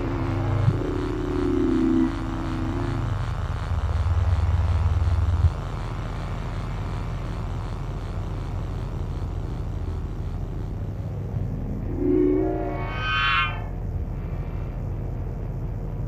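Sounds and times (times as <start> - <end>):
wavering moaning tone: 0.0 - 3.2, 11.2 - 14.2
generator humming drone: 0.0 - 16.0.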